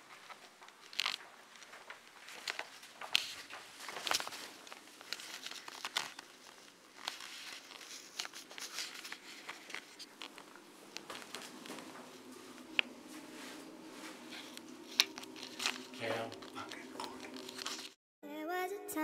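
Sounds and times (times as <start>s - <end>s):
crinkly rustling: 0.0s - 18.0s.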